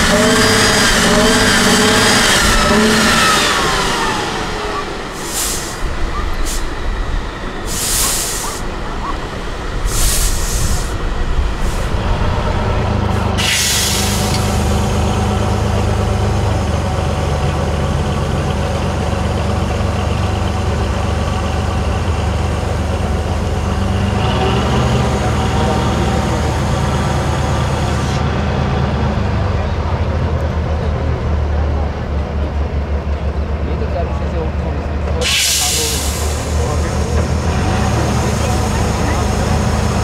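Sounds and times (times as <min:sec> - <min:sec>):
diesel truck engine rumbling: 0:00.0 - 0:40.0
short hisses: 0:05.1 - 0:06.7, 0:07.7 - 0:08.7, 0:09.8 - 0:11.0, 0:13.4 - 0:14.6, 0:35.2 - 0:36.6.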